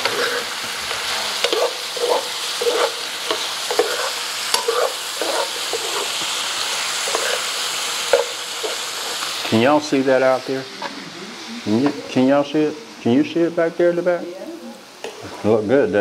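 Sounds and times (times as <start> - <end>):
metal utensil stirring and scraping: 0.0 - 9.6
food sizzling in a pan: 0.0 - 16.0.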